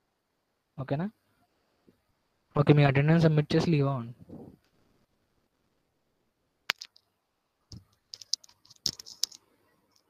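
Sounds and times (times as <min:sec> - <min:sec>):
computer keys and mouse clicking: 0:07.7 - 0:10.0.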